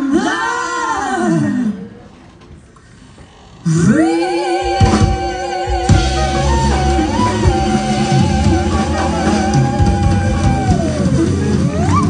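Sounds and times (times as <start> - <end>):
female voices singing harmony: 3.7 - 12.0
drum kit: 4.6 - 12.0
guitar: 4.7 - 12.0
double bass: 4.8 - 12.0.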